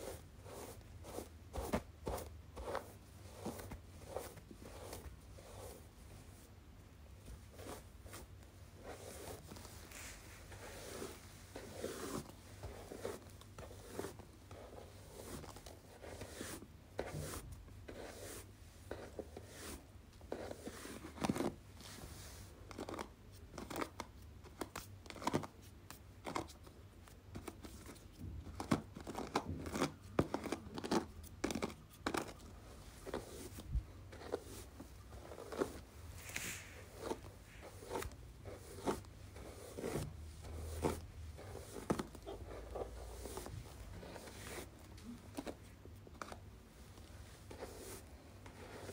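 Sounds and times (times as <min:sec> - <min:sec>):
hairbrush strokes: 0:07.5 - 0:19.8, 0:33.0 - 0:44.8, 0:47.2 - 0:48.9.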